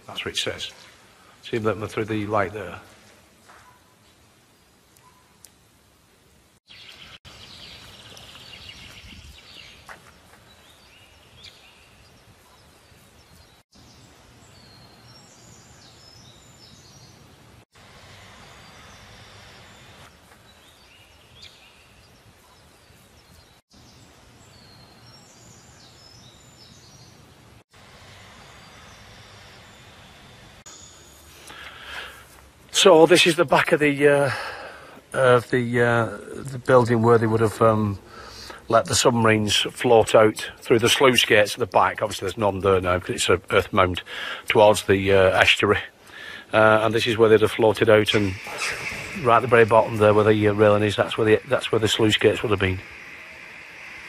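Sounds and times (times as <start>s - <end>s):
small birds chirping: 3.4s - 5.7s, 6.7s - 17.6s, 18.2s - 54.0s
low wind rumble: 5.8s - 30.6s, 46.8s - 54.0s.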